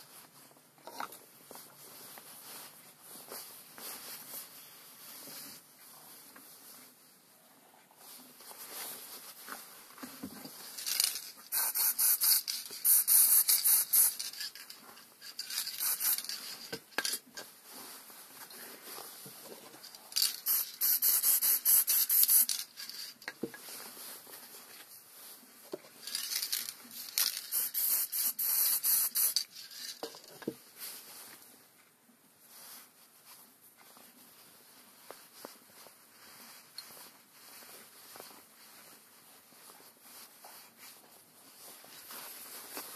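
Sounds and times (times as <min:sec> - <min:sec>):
aerosol spray can hissing: 0:10.8 - 0:14.5, 0:15.4 - 0:16.5, 0:20.2 - 0:22.7, 0:27.1 - 0:29.5.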